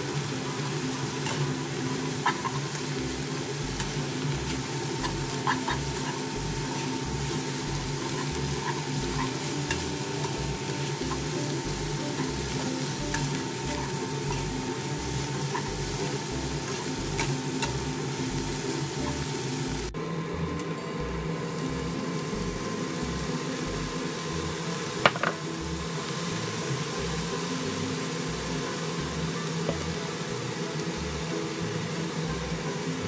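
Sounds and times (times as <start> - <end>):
spatula stirring and tossing: 0.0 - 20.0
noodles sizzling in a wok: 0.0 - 33.0.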